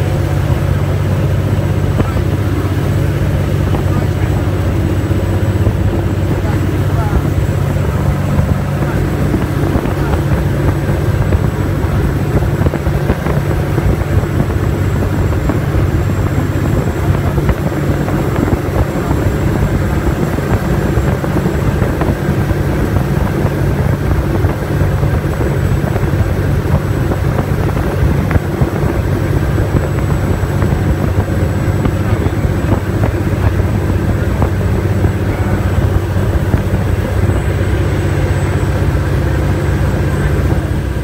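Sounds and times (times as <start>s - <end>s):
boat engines droning: 0.0s - 41.0s
water rushing along hull: 0.0s - 41.0s.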